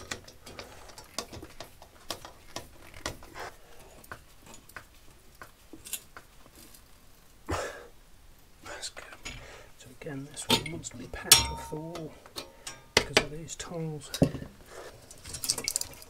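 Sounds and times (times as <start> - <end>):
light clicks of metal tools: 10.5 - 13.4.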